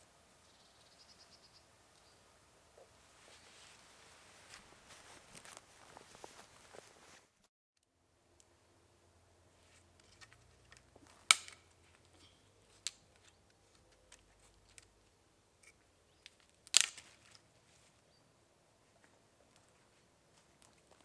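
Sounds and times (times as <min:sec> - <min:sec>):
dry twigs snapping: 0:04.5 - 0:06.1, 0:10.0 - 0:15.0, 0:16.2 - 0:17.5.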